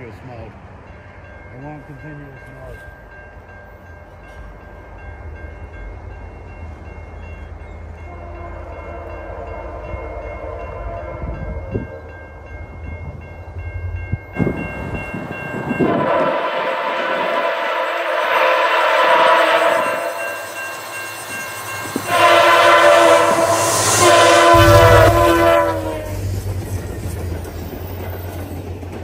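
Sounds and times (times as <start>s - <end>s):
crossing bell ringing: 0.0s - 28.5s
train horn: 8.0s - 12.1s, 15.6s - 20.6s, 21.9s - 26.4s
low rumble: 23.9s - 27.9s.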